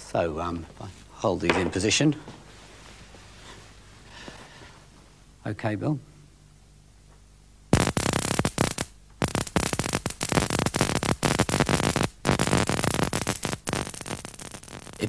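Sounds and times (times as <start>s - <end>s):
electric sparks crackling: 7.7s - 15.0s.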